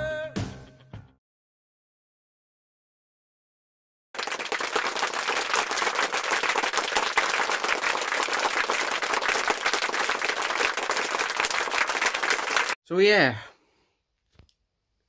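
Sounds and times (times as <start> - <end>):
crowd applauding: 4.2 - 12.8.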